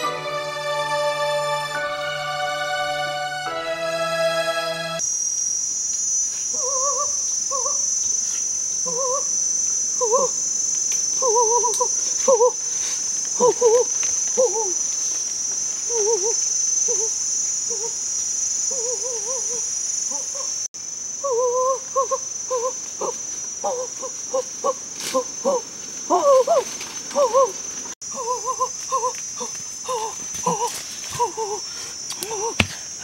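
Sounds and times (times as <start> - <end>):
insect chorus drone: 0.0 - 33.0
wavering animal calls: 6.3 - 10.6, 11.2 - 31.7.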